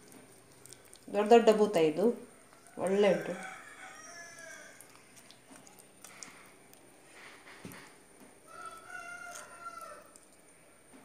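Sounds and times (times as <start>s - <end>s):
rooster crowing: 2.4s - 5.0s, 8.4s - 10.2s
fingers squelching paste onto fish: 4.4s - 6.9s.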